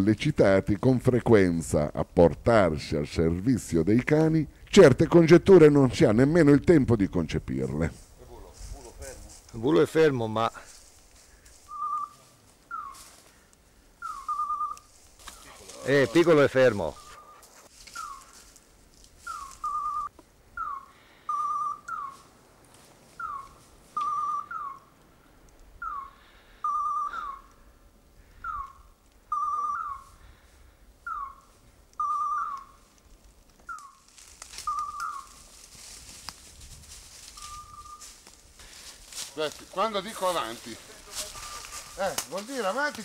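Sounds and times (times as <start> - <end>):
electronic collar beeping: 21.3 - 22.0, 24.0 - 24.6, 26.6 - 27.3, 29.3 - 29.9.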